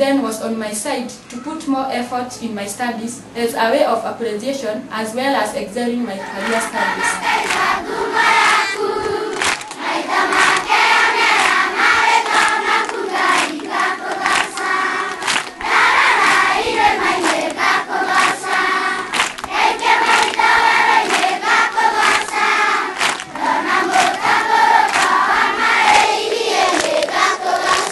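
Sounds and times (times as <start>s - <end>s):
children singing in chorus: 6.2s - 27.9s
hand clapping: 7.4s - 8.7s, 9.3s - 27.9s.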